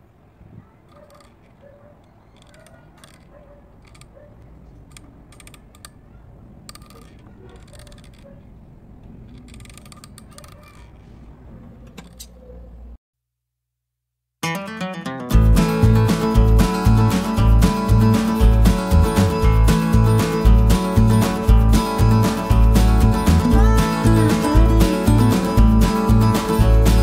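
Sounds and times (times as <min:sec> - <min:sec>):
wooden crank clicks and rattles: 0:00.8 - 0:06.0, 0:06.6 - 0:08.5, 0:09.1 - 0:11.0.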